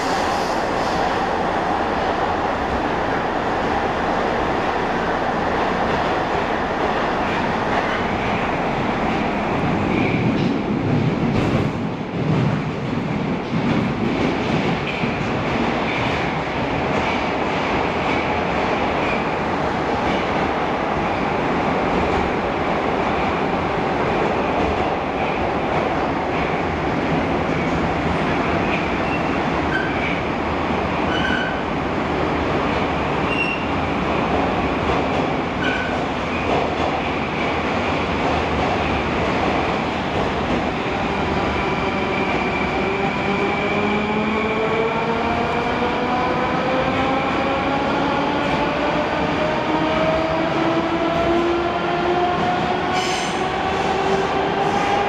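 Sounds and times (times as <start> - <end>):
metro car wheels rumbling on rail: 0.0 - 55.0.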